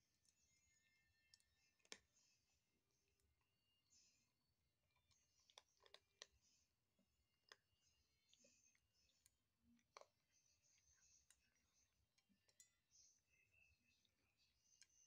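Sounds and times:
kitten crunching kibble: 1.6s - 2.3s, 4.8s - 12.9s.

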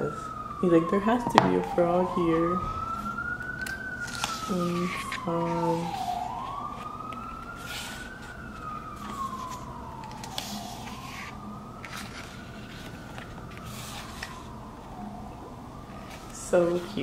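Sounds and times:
emergency vehicle siren wailing: 0.0s - 17.0s
paper rustling: 2.9s - 14.6s, 15.9s - 17.0s.

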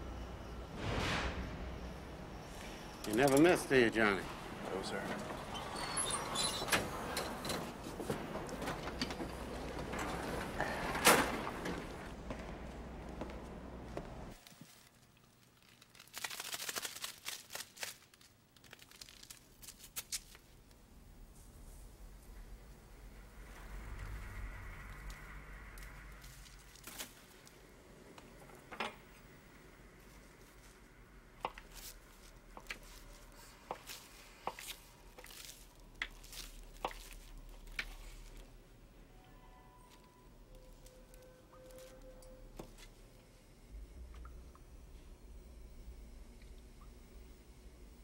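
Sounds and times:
paper packet crinkling and tearing: 14.4s - 20.8s, 25.8s - 27.6s, 31.5s - 38.5s.

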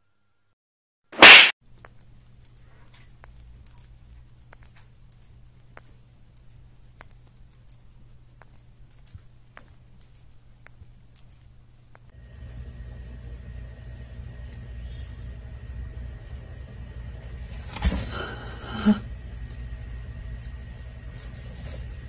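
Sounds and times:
faint clicks and taps: 1.7s - 12.1s.

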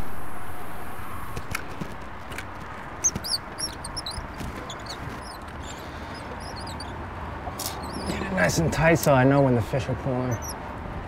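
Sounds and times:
small birds chirping: 2.9s - 7.0s, 7.6s - 9.5s, 10.2s - 10.6s.

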